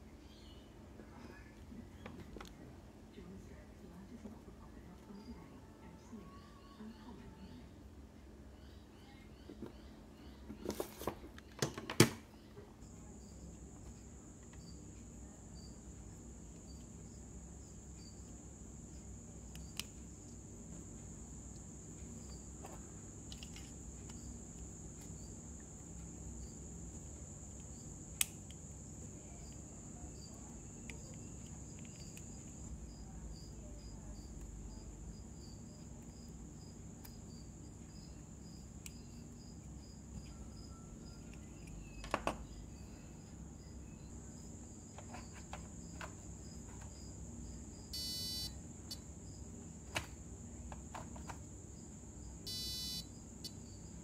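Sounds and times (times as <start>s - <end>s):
short electronic beep: 48.0s - 48.5s, 52.5s - 53.0s.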